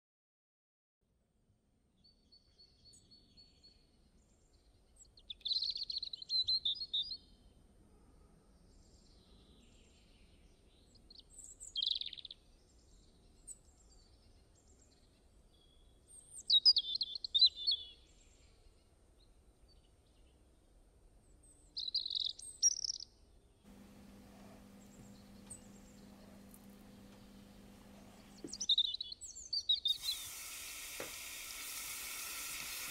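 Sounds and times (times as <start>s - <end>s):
faint background noise: 23.7s - 28.7s
steady low hum: 23.7s - 28.7s.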